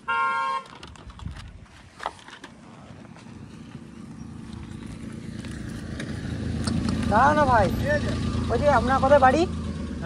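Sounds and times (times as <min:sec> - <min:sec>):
vehicle engine approaching: 0:02.5 - 0:10.0.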